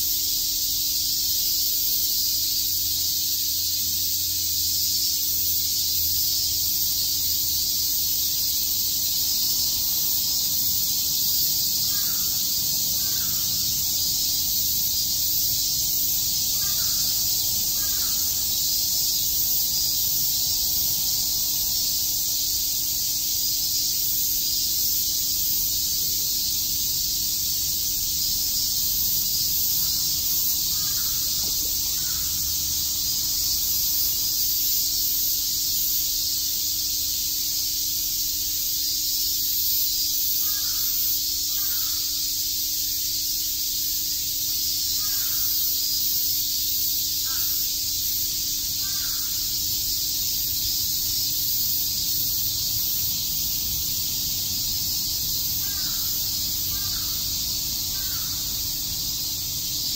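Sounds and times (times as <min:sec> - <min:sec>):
cicadas chorus: 0:00.0 - 0:59.9
faint short insect calls: 0:00.0 - 0:59.9.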